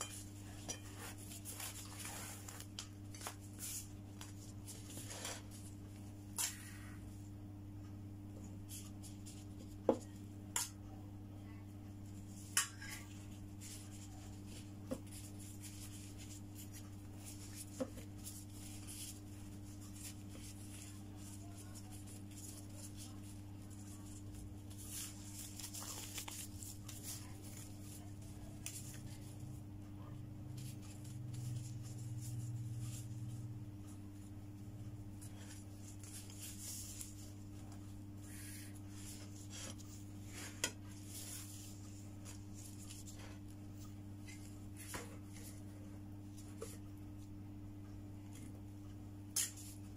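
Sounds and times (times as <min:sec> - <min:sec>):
low steady hum: 0:00.0 - 0:49.9
gloved hands rustling wrappers: 0:13.1 - 0:29.2.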